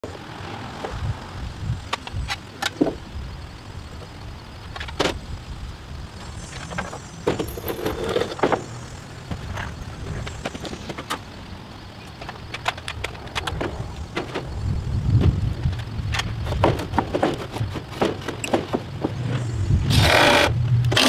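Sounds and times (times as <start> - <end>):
steady low rumble: 0.0 - 21.0
knocks and clatters on wooden deck: 2.6 - 3.0, 6.6 - 8.7, 12.2 - 14.6, 15.2 - 19.3.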